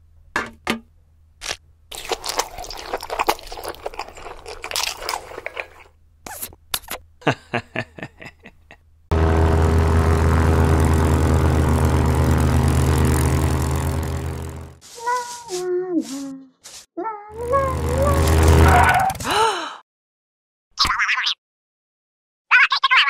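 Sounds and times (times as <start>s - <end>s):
propeller plane engine droning: 9.1s - 14.8s, 17.4s - 19.3s.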